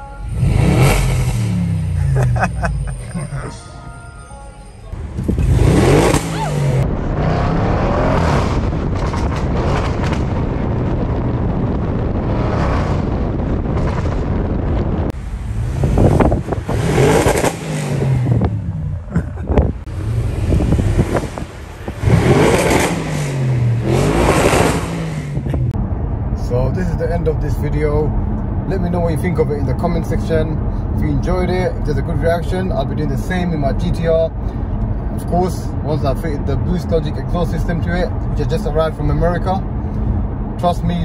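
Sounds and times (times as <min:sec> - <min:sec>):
car exhaust revving: 0:00.2 - 0:03.1, 0:05.0 - 0:26.4
exhaust cracks: 0:05.0 - 0:30.3.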